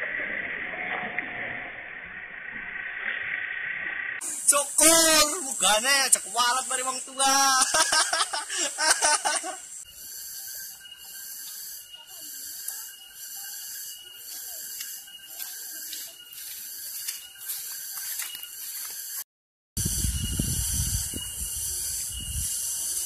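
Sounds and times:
outdoor background hiss: 4.2 - 19.2
young man laughing: 7.3 - 9.8
faint thin tones: 9.4 - 19.2.

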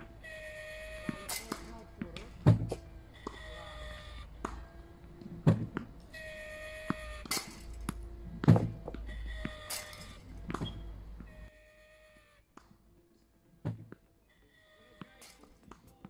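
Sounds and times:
ball machine launch thunk: 1.2 - 2.8, 7.2 - 9.0.

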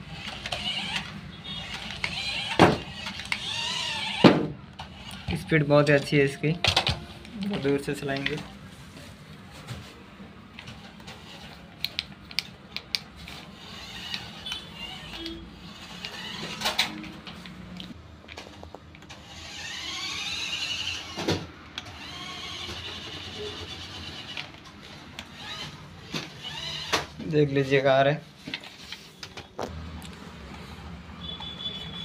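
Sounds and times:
toy car electric motor whining: 0.0 - 5.5, 10.7 - 11.6, 13.2 - 17.1, 19.1 - 27.1.

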